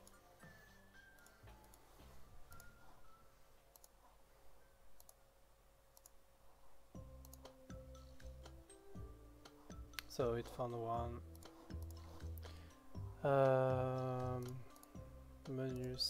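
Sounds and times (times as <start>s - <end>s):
faint background music: 0.0s - 16.0s
computer mouse clicks: 3.7s - 4.0s, 4.9s - 5.2s, 5.9s - 6.2s, 7.2s - 7.6s, 11.2s - 12.5s, 14.4s - 15.0s.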